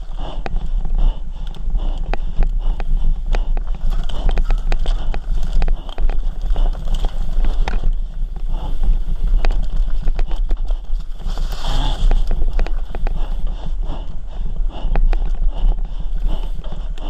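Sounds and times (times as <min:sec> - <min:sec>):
wind buffeting microphone: 0:00.0 - 0:17.0
bike chain and frame rattling: 0:03.0 - 0:13.6.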